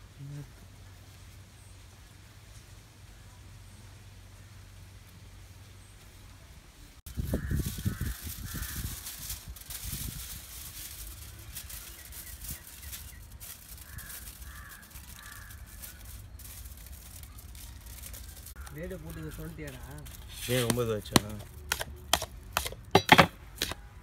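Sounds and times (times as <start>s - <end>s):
aluminium foil crinkling: 7.1s - 22.6s
crows cawing: 7.3s - 9.1s, 13.6s - 16.2s, 18.5s - 18.9s.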